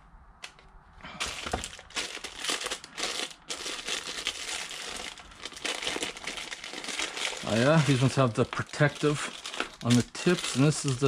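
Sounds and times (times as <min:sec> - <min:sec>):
plastic bag crinkling: 0:01.2 - 0:11.0.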